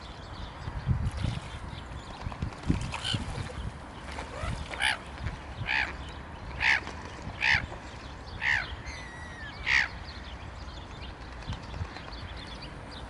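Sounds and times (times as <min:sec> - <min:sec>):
harsh caw-like bird calls: 0:05.6 - 0:06.0, 0:06.6 - 0:07.7, 0:08.4 - 0:10.1.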